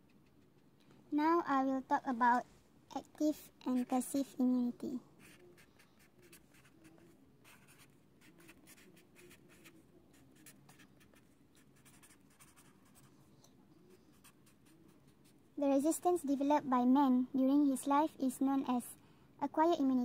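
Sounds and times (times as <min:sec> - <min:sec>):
marker pen writing on paper: 0:05.2 - 0:13.1, 0:14.0 - 0:15.4.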